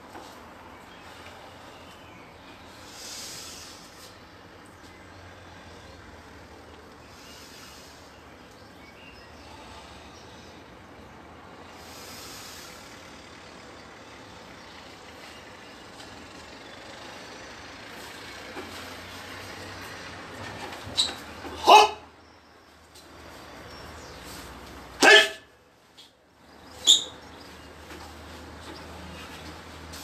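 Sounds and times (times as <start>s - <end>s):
even hiss: 2.8s - 4.2s, 11.6s - 13.2s.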